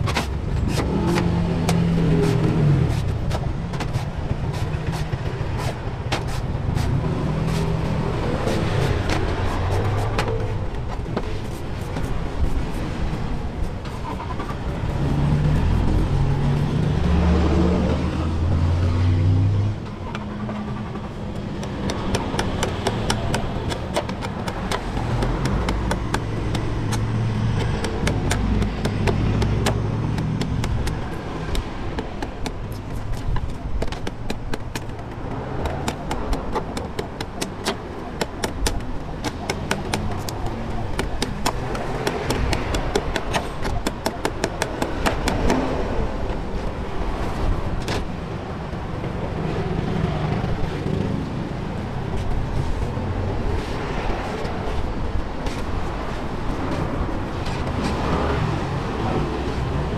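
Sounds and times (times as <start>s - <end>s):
loud engine rumble: 0.0s - 59.9s
traffic rumble: 0.0s - 59.9s
knife chopping on wooden block: 21.6s - 45.6s.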